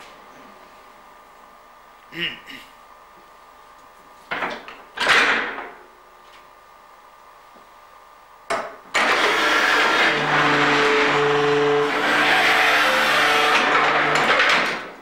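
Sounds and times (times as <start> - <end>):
barrel machine running: 8.9 - 15.0.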